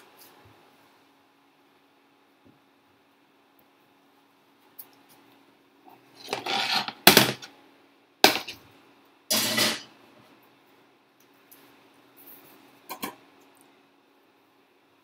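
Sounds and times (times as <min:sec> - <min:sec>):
pan scraping on cooktop: 0:06.1 - 0:07.5, 0:09.3 - 0:09.9.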